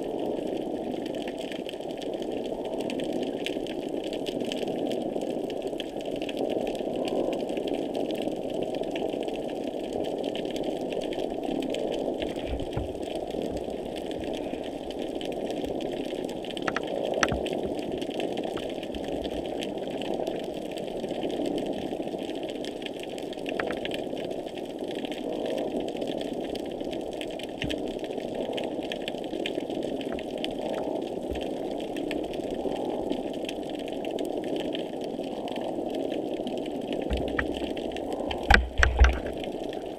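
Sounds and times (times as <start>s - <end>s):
underwater machine-like hum: 8.2s - 22.6s, 23.4s - 26.0s, 26.6s - 39.9s
sharp underwater clicks: 16.5s - 17.8s, 23.5s - 24.0s, 37.0s - 39.5s.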